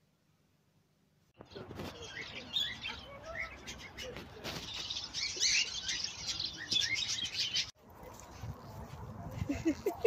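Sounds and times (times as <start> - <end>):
small birds chirping: 1.4 - 8.8.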